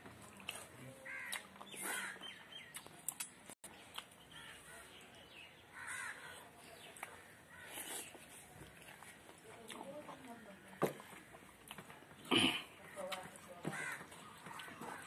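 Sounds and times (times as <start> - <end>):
eating by hand clicks and smacks: 0.0 - 4.2, 6.9 - 15.0
harsh caw-like bird calls: 1.0 - 2.4, 4.3 - 4.8, 5.7 - 6.4, 13.7 - 15.0.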